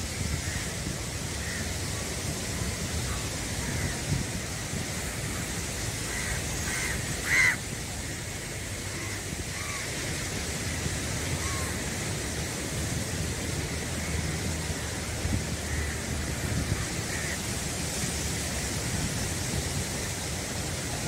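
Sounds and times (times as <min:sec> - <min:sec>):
surf: 0:00.0 - 0:21.0
wind: 0:00.0 - 0:21.0
bird calling: 0:06.1 - 0:07.6.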